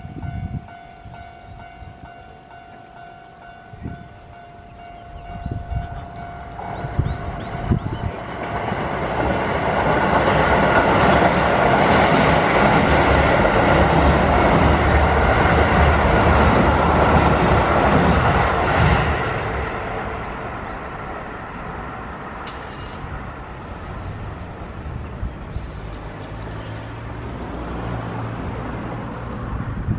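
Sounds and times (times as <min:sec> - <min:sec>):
crossing warning bell: 0:00.0 - 0:19.6
train wheels rumbling: 0:00.0 - 0:29.9.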